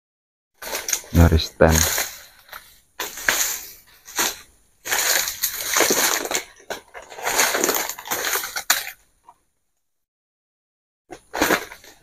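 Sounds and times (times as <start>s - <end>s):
leaves and undergrowth rustling: 0.6s - 8.9s.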